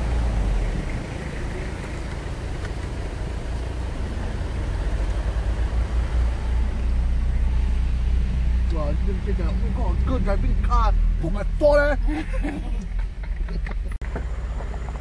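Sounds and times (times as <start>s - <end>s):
tyres on dirt trail: 0.0s - 15.0s
vehicle engine rumble: 0.0s - 15.0s.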